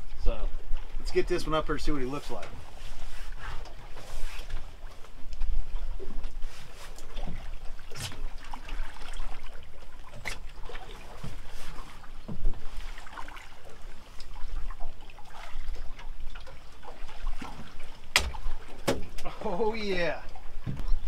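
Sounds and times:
water lapping against hull: 0.0 - 21.0
sharp knocks: 18.1 - 19.1.

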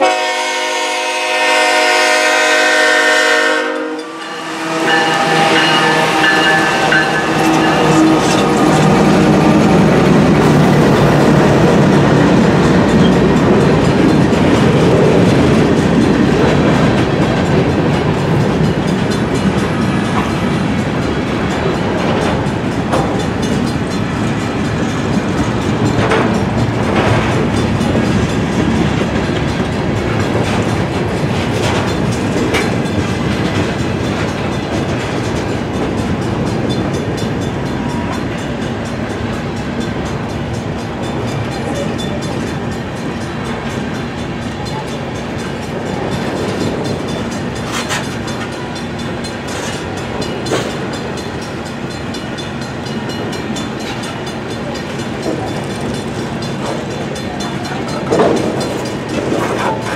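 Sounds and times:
locomotive horn: 0.0 - 10.3
train wheels rumbling on rail: 0.0 - 59.9
sharp knocks of train cars: 55.1 - 59.9.

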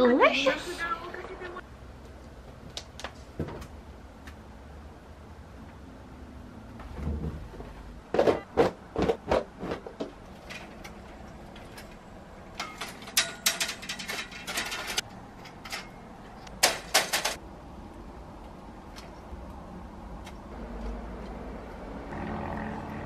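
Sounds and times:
metal drying rack clacking: 9.4 - 17.4.

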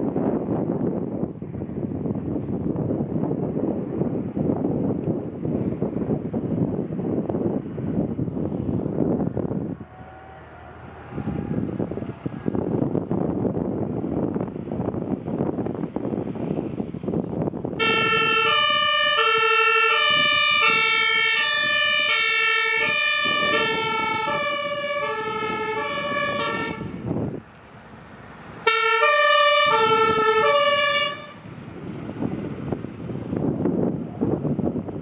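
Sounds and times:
fire engine two-tone siren: 9.8 - 12.7, 17.7 - 27.3, 28.6 - 31.5.

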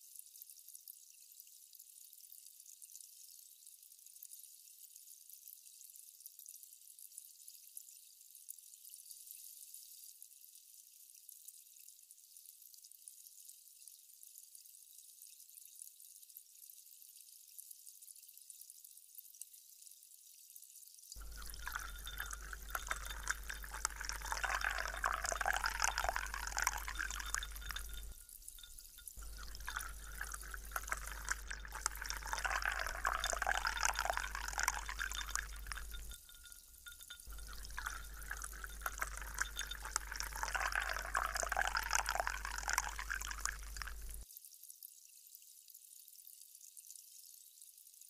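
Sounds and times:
liquid pouring over ice: 21.2 - 44.2.

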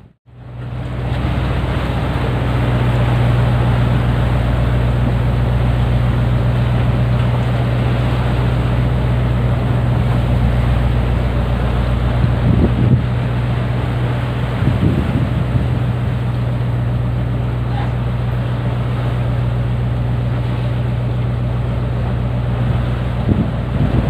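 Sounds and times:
boat engine humming: 0.0 - 24.0
water rushing along hull: 0.0 - 24.0.

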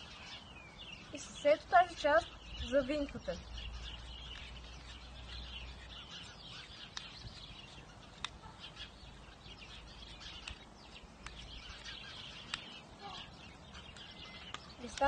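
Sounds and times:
small birds chirping: 0.0 - 15.0
sharp ticks: 10.2 - 12.8, 13.8 - 15.0.

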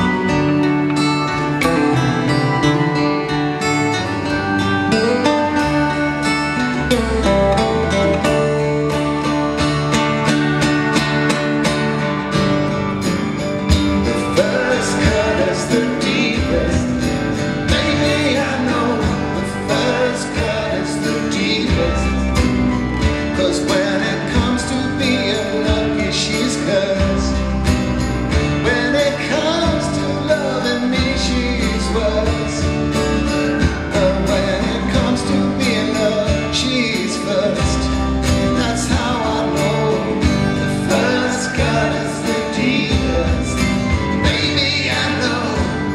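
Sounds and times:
acoustic guitar strumming: 0.0 - 45.9
second guitar playing: 0.0 - 45.9
man singing: 14.0 - 27.6, 28.4 - 45.9.

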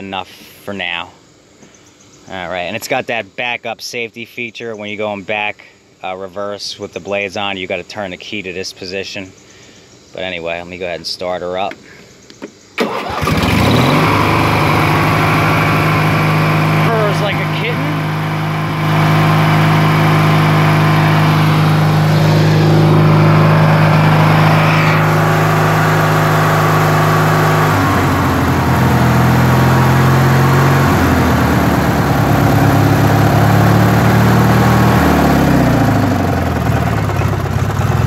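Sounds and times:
lawn tractor engine running: 12.8 - 38.0.

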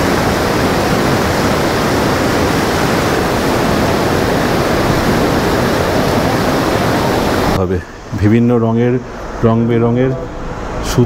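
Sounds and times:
river rushing over rocks: 0.0 - 7.6.

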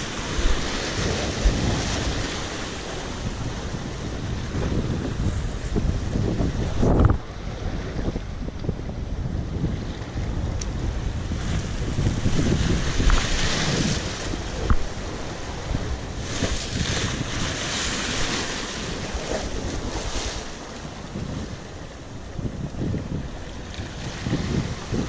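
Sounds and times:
sea surf washing ashore: 0.0 - 25.0
wind buffeting microphone: 0.0 - 25.0.

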